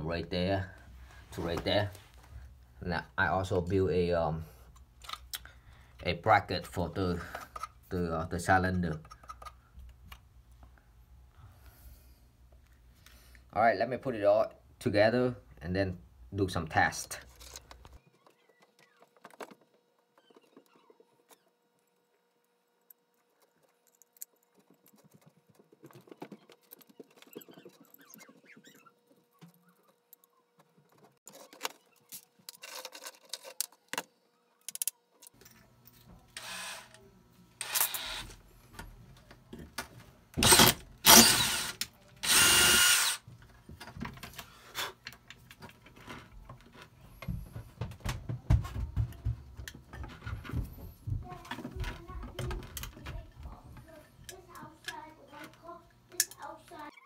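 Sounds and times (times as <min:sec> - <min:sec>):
cordless drill whirring: 0:36.4 - 0:37.0, 0:37.6 - 0:38.4, 0:40.4 - 0:43.2
screwdriver scraping metal: 0:37.6 - 0:38.3, 0:40.4 - 0:43.2.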